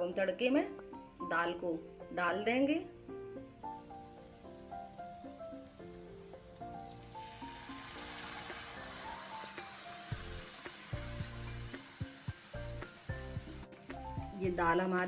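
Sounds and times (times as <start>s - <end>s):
background music: 0.0s - 15.0s
spices sizzling in hot oil: 3.6s - 15.0s.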